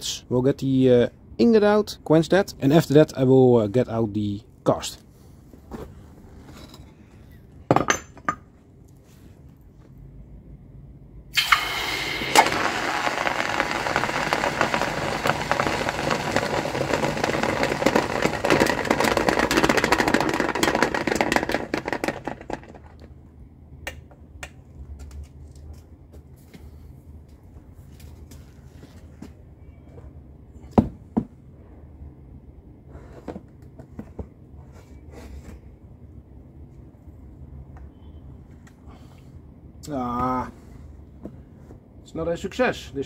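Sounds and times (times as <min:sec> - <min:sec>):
hot metal sizzling in water: 0:11.4 - 0:18.5.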